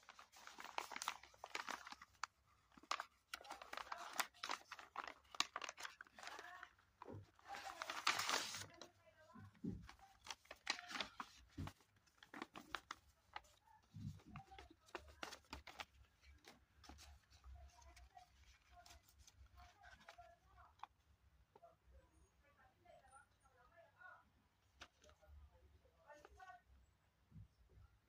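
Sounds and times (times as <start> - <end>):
rush of paper noise: 0.0 - 8.8, 9.8 - 20.2
paper mailer crinkling: 0.0 - 20.3.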